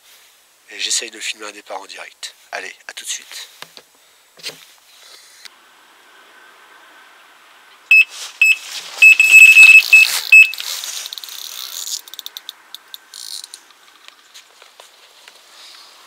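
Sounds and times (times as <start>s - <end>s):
electronic bite alarm beeps: 7.9s - 10.6s.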